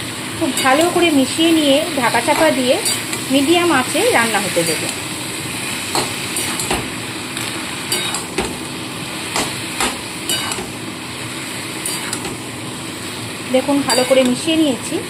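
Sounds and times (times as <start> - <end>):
frying sizzle: 0.0 - 15.0
metal spatula scraping a pan: 11.8 - 12.3, 13.9 - 14.4.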